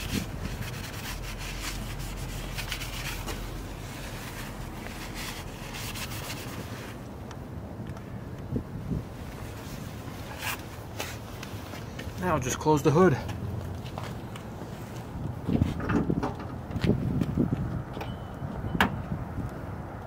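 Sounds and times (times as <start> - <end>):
paper towel rubbing plastic: 0.0 - 7.0.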